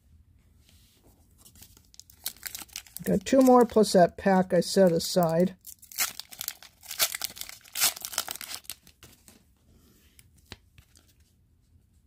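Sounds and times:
wrapper tearing and crinkling: 1.6s - 3.9s, 5.0s - 9.2s.

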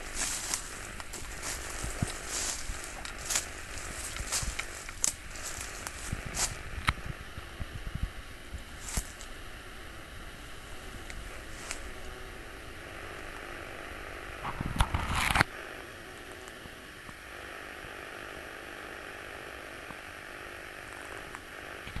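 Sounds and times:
crackling and rustling: 0.0s - 15.5s
steady outdoor hiss: 0.0s - 22.0s.

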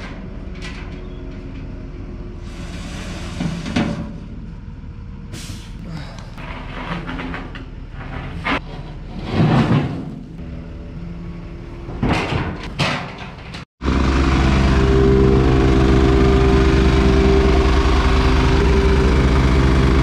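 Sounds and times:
machine clunking on steel ramp: 11.9s - 13.7s
engine idling: 13.8s - 20.0s
plate compactor engine running: 13.8s - 20.0s.

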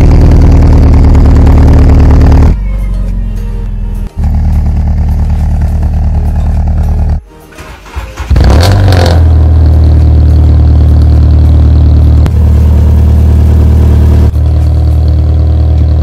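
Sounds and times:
car engine idling: 0.0s - 7.2s, 9.2s - 16.0s
car engine cranking and starting: 4.1s - 16.0s.

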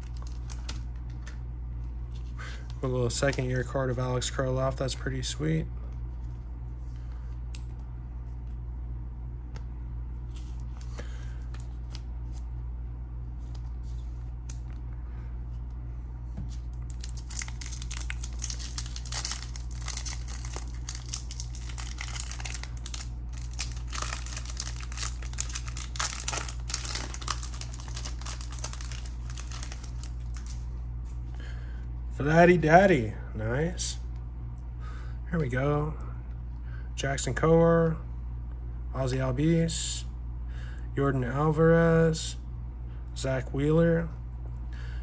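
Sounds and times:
foil wrapper crinkling and tearing: 0.0s - 0.8s, 16.7s - 30.6s
steady low hum: 0.0s - 45.0s.

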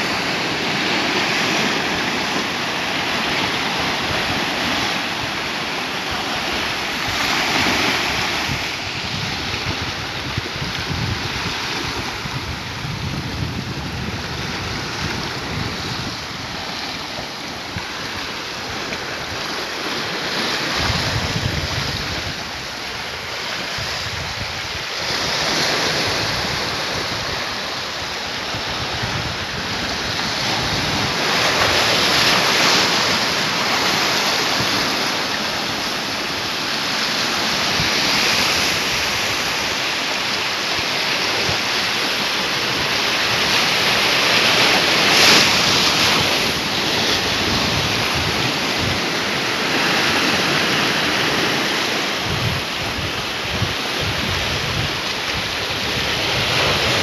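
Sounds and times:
surf breaking on rocks: 0.0s - 57.0s
wind rumble on microphone: 3.1s - 57.0s.

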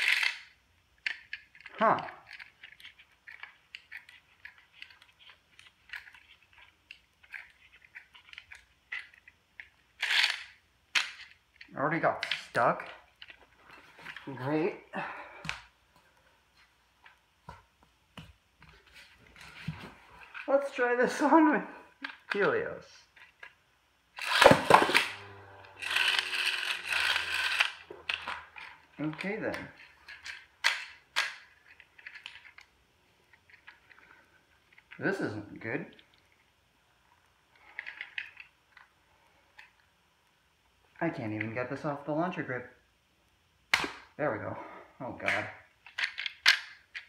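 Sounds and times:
spinning top whirring on plastic: 0.0s - 1.6s, 2.4s - 11.4s, 24.1s - 28.9s
launcher cord rasp: 24.2s - 28.3s.

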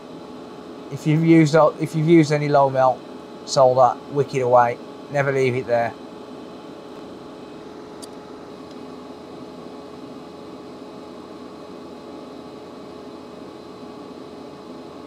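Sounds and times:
faint constant hum tone: 0.0s - 15.0s
fan-like whir: 0.0s - 15.0s
small click: 8.0s - 8.8s.

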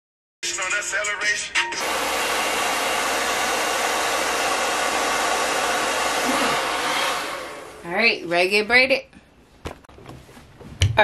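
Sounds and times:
blow dryer running: 1.8s - 8.4s.

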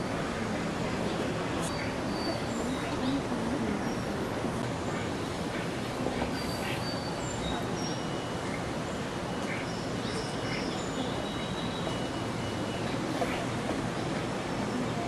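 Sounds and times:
faint distant voices: 0.0s - 15.0s
outdoor background noise: 0.0s - 15.0s
small birds chirping: 0.9s - 15.0s.

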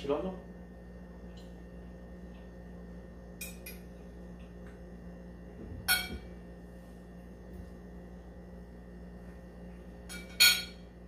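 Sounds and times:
faint steady hum: 0.0s - 11.0s
fork clinking on plate: 10.1s - 10.8s.

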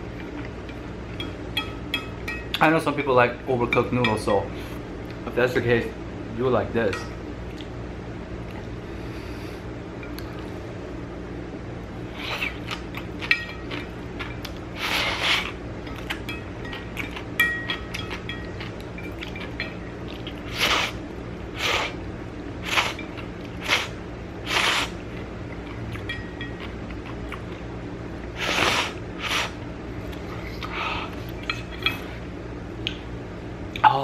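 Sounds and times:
person slurping noodles: 14.8s - 15.6s, 20.5s - 21.0s, 21.6s - 22.0s, 23.6s - 25.0s, 28.4s - 29.6s.

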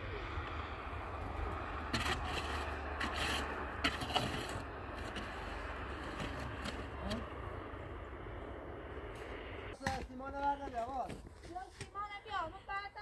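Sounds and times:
steady low rumble: 0.0s - 9.8s
scraping and rubbing noises: 1.8s - 7.2s.

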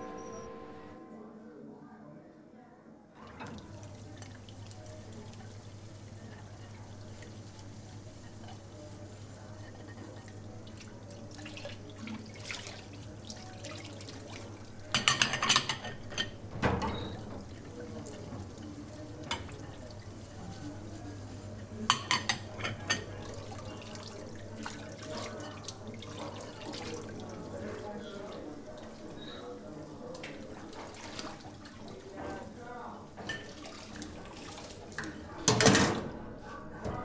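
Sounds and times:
water splashing: 10.1s - 14.9s, 30.0s - 32.2s.

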